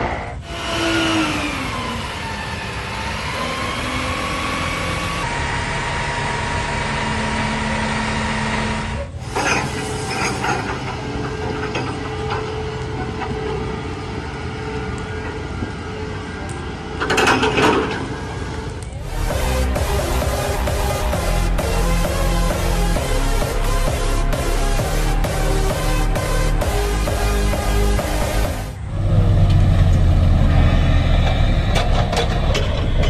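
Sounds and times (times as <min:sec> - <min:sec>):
falling whine: 0:00.0 - 0:33.0
heavy machinery engine noise: 0:00.0 - 0:33.0
steady machine whine: 0:00.0 - 0:33.0
machinery clatter: 0:01.7 - 0:15.8, 0:16.5 - 0:28.8, 0:31.0 - 0:33.0.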